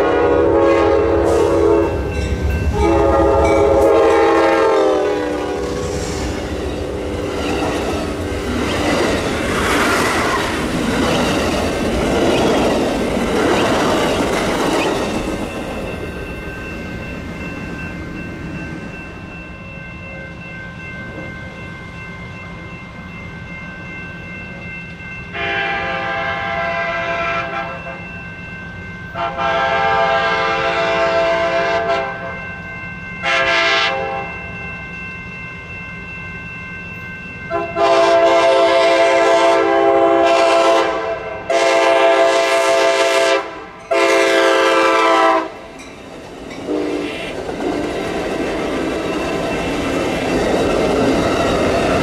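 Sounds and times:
train air horn blasts: 0.0 - 7.3, 25.4 - 28.0, 29.2 - 32.4, 33.2 - 34.3, 37.5 - 45.6, 46.7 - 47.2
train cars rumbling on rails: 0.0 - 21.6, 36.9 - 52.0
crossing bell ringing: 0.0 - 52.0.

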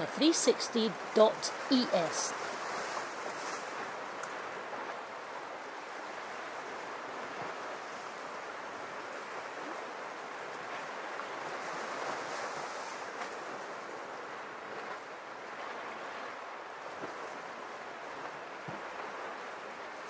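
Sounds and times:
small waves against rocks: 0.9 - 4.9.

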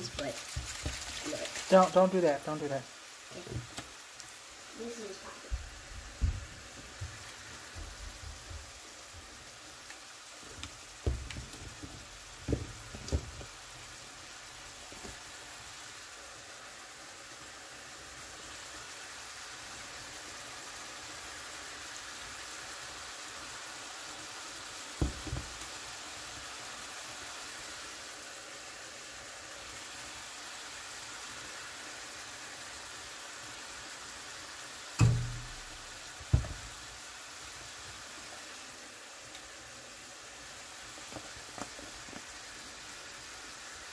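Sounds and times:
beef sizzling in a frying pan: 0.0 - 43.9
sharp knocks: 35.0 - 35.7.

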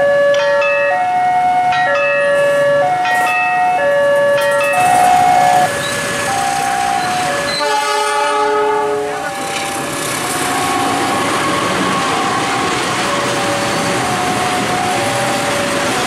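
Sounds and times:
two-tone warning siren: 0.0 - 16.0
train horn: 7.4 - 9.3.

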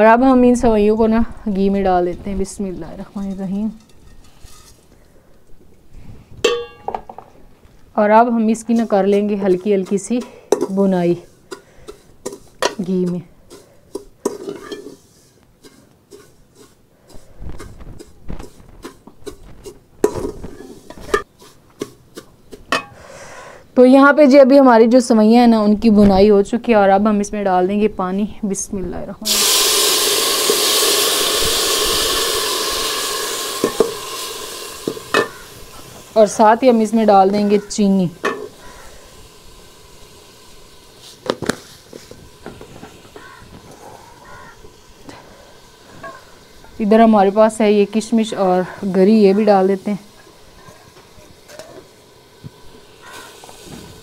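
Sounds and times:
ladle scraping a steel pot: 2.9 - 5.1, 8.5 - 22.9
utensils knocking on steel pot: 6.4 - 7.2, 8.6 - 10.9, 11.5 - 15.0, 20.0 - 23.0, 32.1 - 35.6, 36.9 - 38.8.

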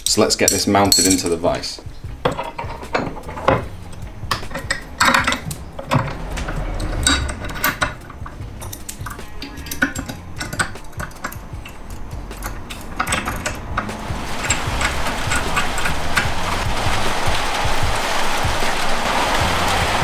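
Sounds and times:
metal parts clinking and rattling: 2.2 - 16.6
sharp metallic clicks: 3.5 - 16.3.

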